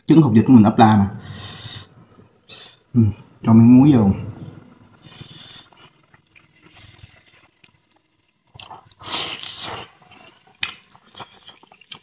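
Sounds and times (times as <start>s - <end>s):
soft chewing: 4.9s - 12.0s.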